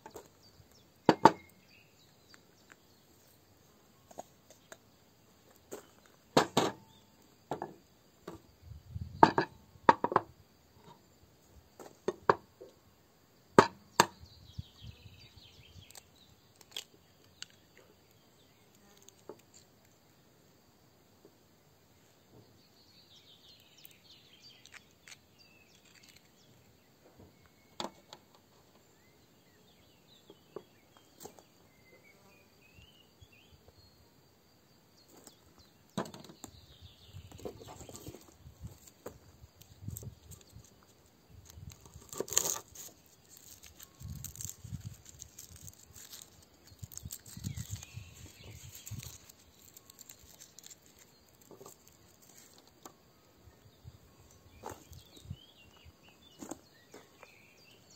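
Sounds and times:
faint chirps: 14.2 - 20.2, 21.8 - 57.9.

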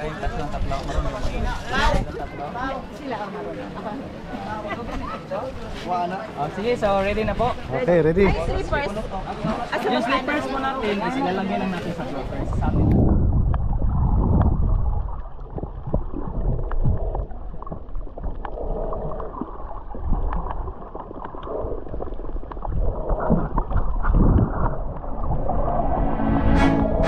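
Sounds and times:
muffled underwater rumble: 11.8 - 27.0.

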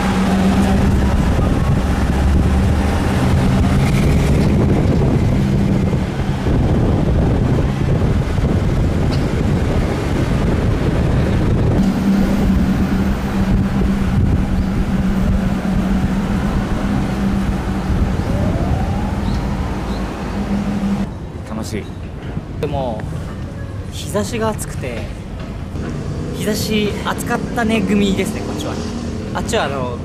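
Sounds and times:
low car engine hum: 0.0 - 21.1
wind buffeting microphone: 0.0 - 21.4.

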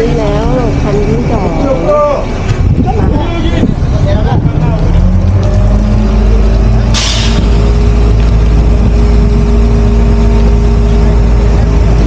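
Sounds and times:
diesel engine running: 0.0 - 12.0
air hiss: 7.0 - 7.5.

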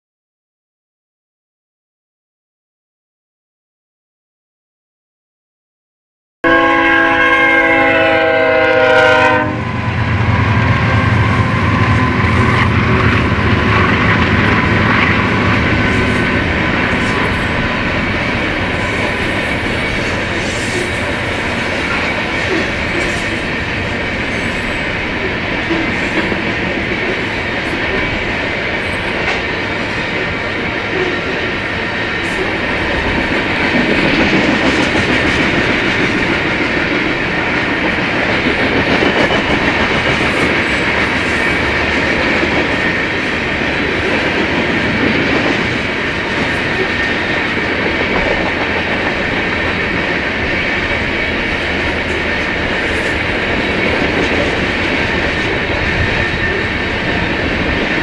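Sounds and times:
train horn: 6.4 - 16.2
train rumbling past: 6.4 - 58.0.

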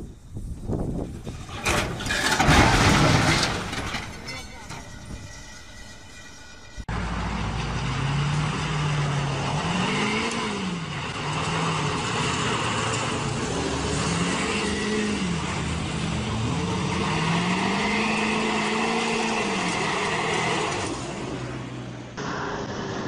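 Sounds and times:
vehicle engine revving: 6.9 - 23.0.

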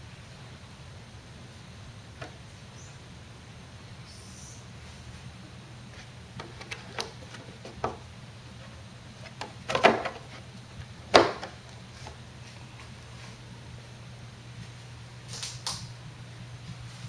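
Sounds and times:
steady low hum: 0.0 - 17.0
handling clicks and knocks: 6.4 - 8.0, 9.2 - 10.5, 11.1 - 11.8.

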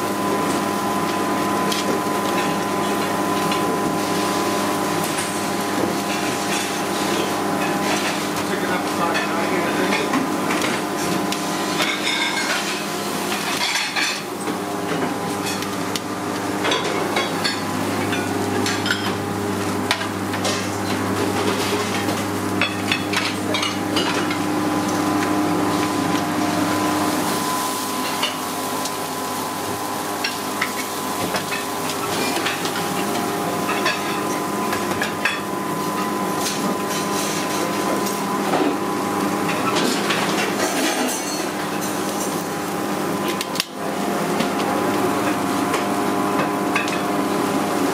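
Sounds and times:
kitchen equipment hum: 0.0 - 47.9
steaks sizzling on a grill: 3.6 - 13.9, 26.7 - 34.4
plates and dishes clinking: 11.8 - 12.8.

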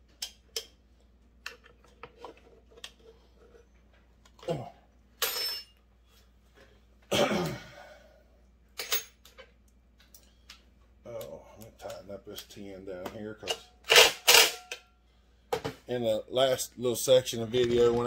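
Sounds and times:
man coughing: 7.1 - 8.0.

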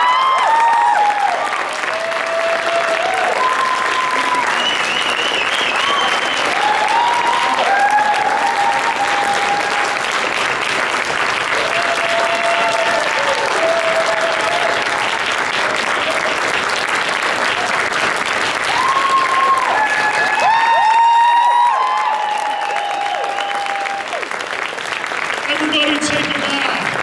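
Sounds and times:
whoops and cheers: 0.0 - 10.2, 11.5 - 16.4, 18.6 - 24.4
audience applauding: 0.0 - 27.0.

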